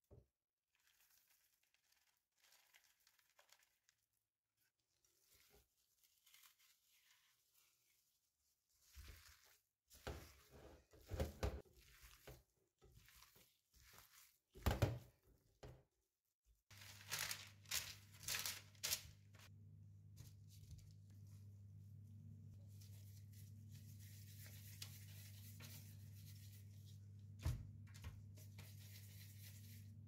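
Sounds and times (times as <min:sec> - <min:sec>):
disposable gloves crinkling: 0:00.8 - 0:11.0, 0:11.8 - 0:14.6, 0:16.7 - 0:19.5
hands kneading minced meat: 0:00.8 - 0:30.0.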